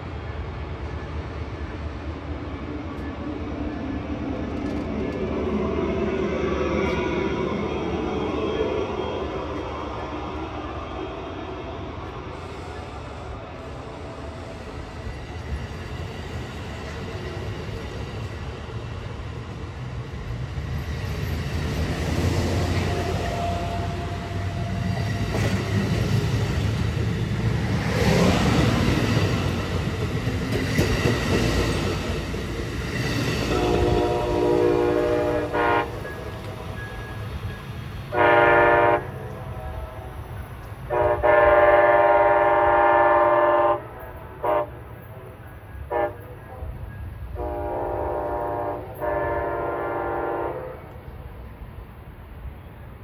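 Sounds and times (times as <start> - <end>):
train rumbling past: 0.0 - 53.0
locomotive air horn blasts: 33.5 - 36.0, 38.1 - 40.2, 40.9 - 44.8, 45.9 - 46.3, 47.4 - 50.8.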